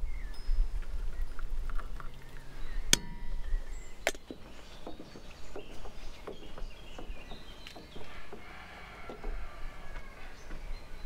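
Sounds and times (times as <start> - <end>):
knocks of handled metal items: 3.0 - 9.4.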